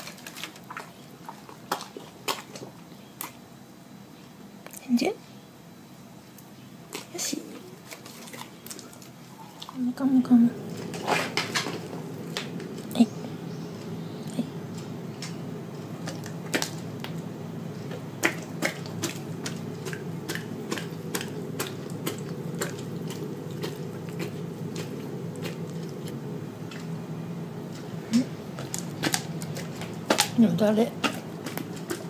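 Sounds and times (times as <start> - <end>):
steady low hum: 0.0 - 32.0
dog licking and smacking lips: 14.7 - 27.0, 27.7 - 32.0.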